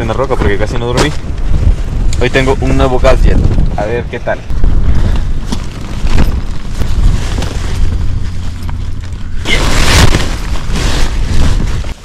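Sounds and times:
strong wind buffeting: 0.0s - 12.0s
nylon fabric rustling: 4.5s - 12.0s.

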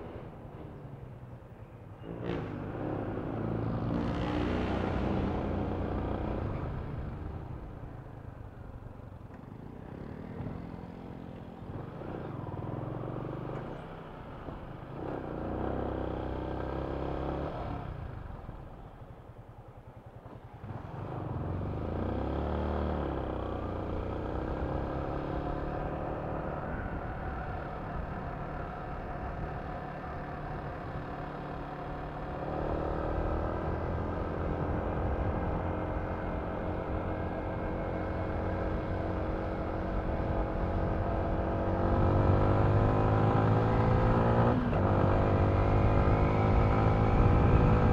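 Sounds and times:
motorcycle engine revving: 20.6s - 47.9s.

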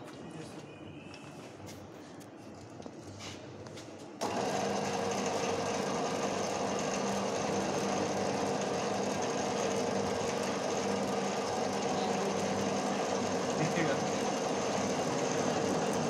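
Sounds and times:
lathe humming: 4.2s - 16.0s.

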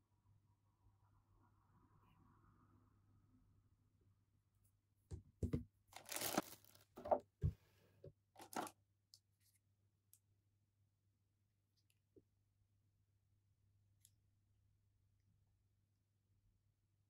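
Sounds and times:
plastic packaging crinkling: 6.0s - 7.2s, 8.4s - 8.7s.

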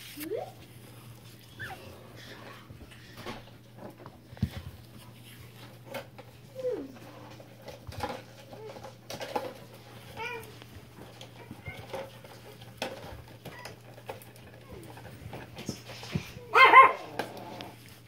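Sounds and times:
puppies whimpering: 1.4s - 2.4s.

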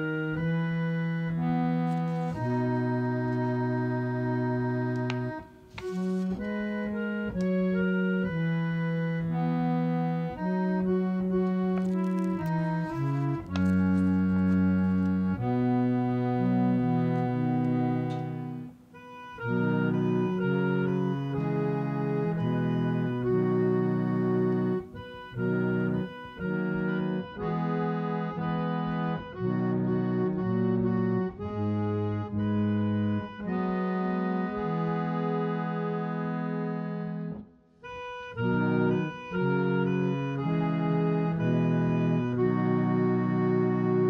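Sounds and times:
organ playing slow chords: 0.0s - 44.0s.

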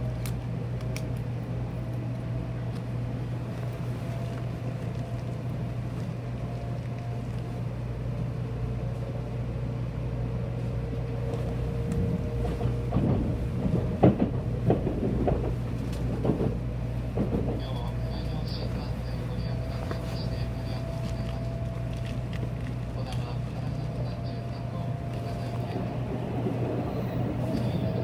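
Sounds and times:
train rumble and hum: 0.0s - 28.0s
knocks and clatters: 12.4s - 18.0s.

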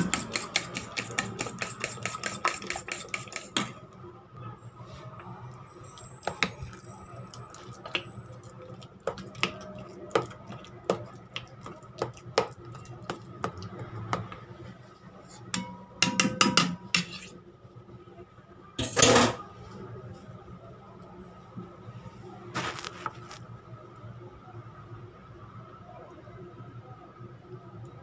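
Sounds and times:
spoon clinking in steel bowl: 15.6s - 17.3s.

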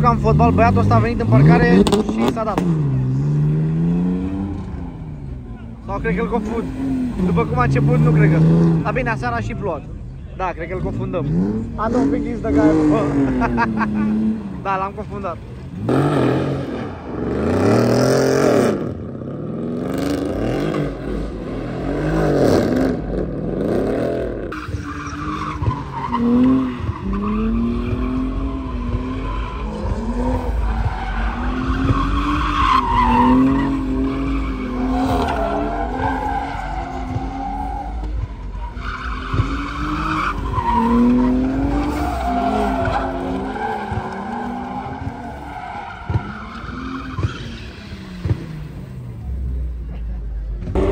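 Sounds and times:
car engine revving: 0.0s - 50.9s
tyres squealing: 24.5s - 48.0s.

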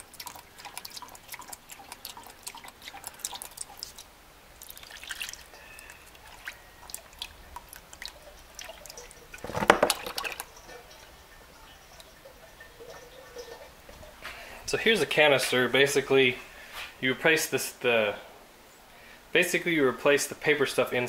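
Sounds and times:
liquid splash: 0.0s - 10.5s
oil dripping into plastic pan: 0.0s - 14.5s.

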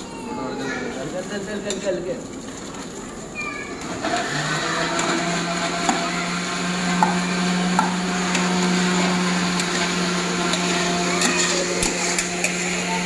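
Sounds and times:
rice clinking in aluminium pots: 1.2s - 2.9s.

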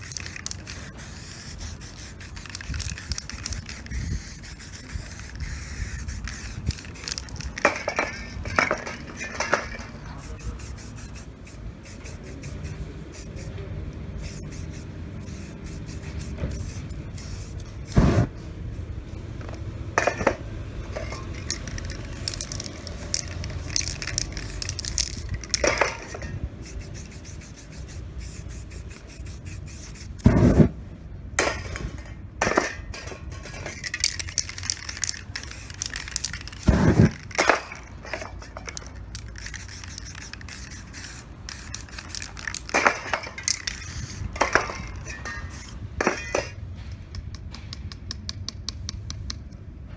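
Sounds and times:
spray-paint cans hissing: 0.0s - 18.5s, 20.9s - 30.7s, 33.4s - 46.6s.

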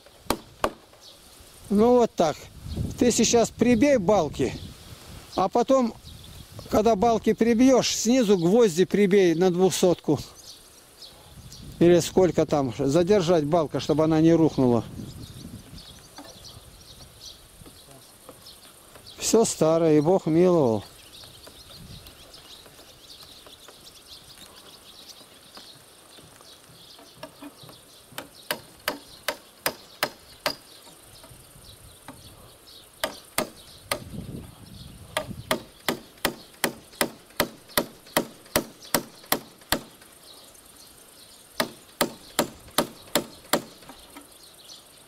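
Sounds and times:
hammer driving nails into wood: 0.3s - 0.9s, 28.1s - 30.6s, 35.2s - 40.1s, 41.6s - 44.0s.

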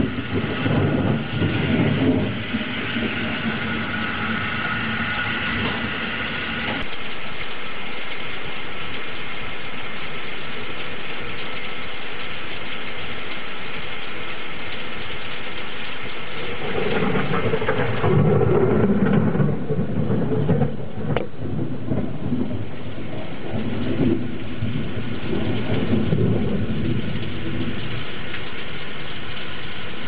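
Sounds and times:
thunder rumbling: 0.0s - 6.9s, 15.8s - 30.0s
steady rain hiss: 0.0s - 30.0s.

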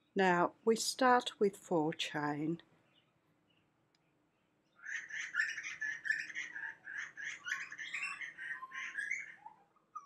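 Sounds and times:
birds chirping: 2.8s - 10.0s.

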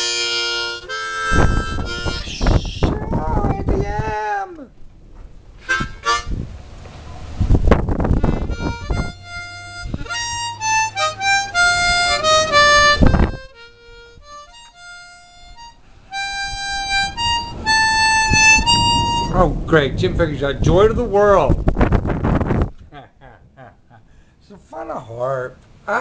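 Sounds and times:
harmonica notes: 0.0s - 3.0s, 5.6s - 6.4s, 8.0s - 19.4s.

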